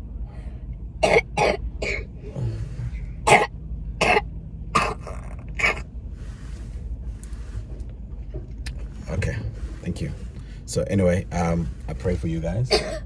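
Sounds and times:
child coughing: 1.0 - 2.1, 3.2 - 4.2, 4.8 - 5.8, 12.7 - 13.0.

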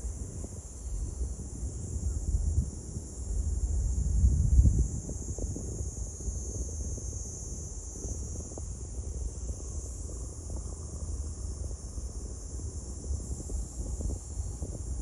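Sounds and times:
insects chirring: 0.0 - 15.0
wind rumbling on microphone: 0.0 - 15.0.

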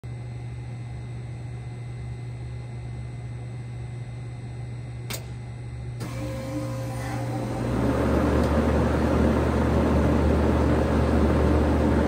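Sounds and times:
heat pump low hum: 0.0 - 12.0
sharp click: 5.1 - 5.4.

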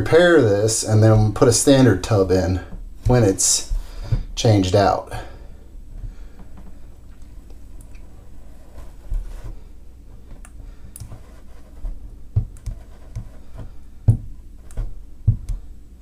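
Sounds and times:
plastic rod scratching on plastic: 11.0 - 13.7.

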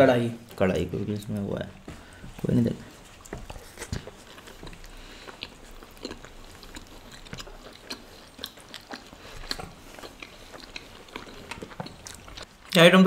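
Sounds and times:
people chewing food: 0.4 - 13.0
mouth clicks and smacks: 3.2 - 12.8.

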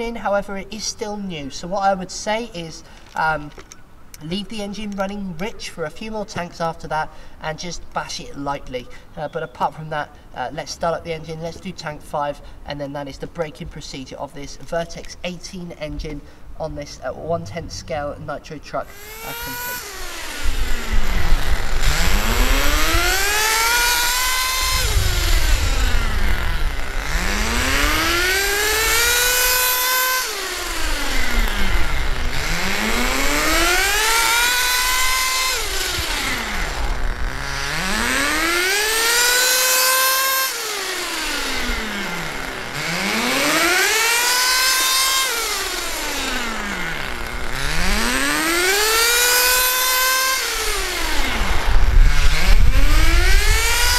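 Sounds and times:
small nitro engine revving: 18.8 - 53.9.

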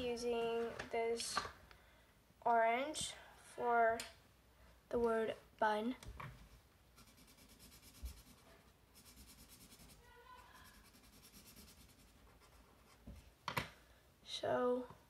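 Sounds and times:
marker scratching on paper: 7.0 - 13.1.

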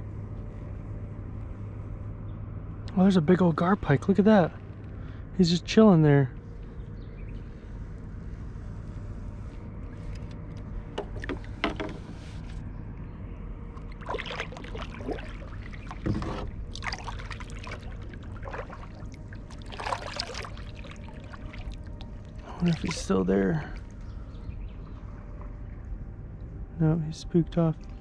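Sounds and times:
steady low rumble: 0.0 - 28.0
water splashing and dripping: 13.8 - 23.9.

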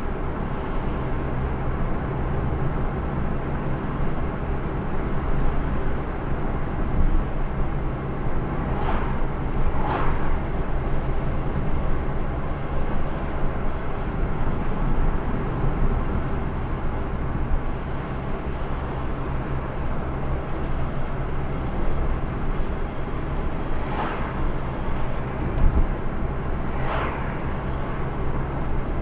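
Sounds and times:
car engine and tyre noise: 0.0 - 29.0
short swishes: 9.8 - 10.3, 26.8 - 27.4.

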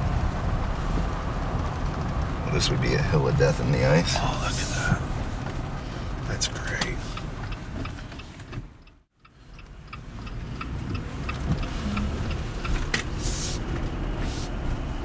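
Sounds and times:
car road noise on wet road: 0.0 - 15.0
light regular ticking: 0.1 - 14.0
short hiss: 13.1 - 14.6.

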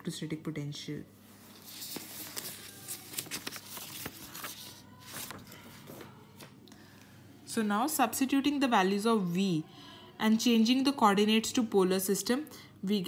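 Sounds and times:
paper pages rustling: 1.4 - 6.6.

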